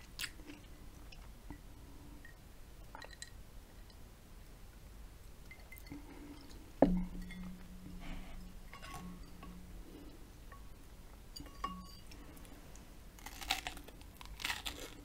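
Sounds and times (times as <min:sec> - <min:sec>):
glass mug knocking on wood: 0:06.8 - 0:08.0.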